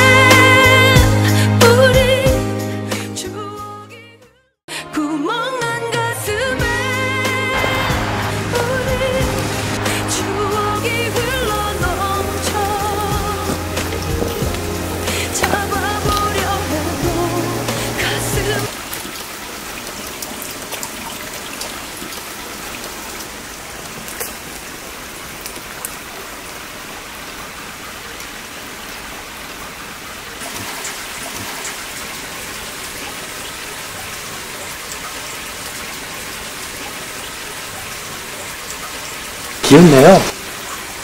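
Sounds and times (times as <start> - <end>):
steady rain hiss: 6.6 - 41.0
raindrop ticks: 11.1 - 17.4, 23.8 - 24.7.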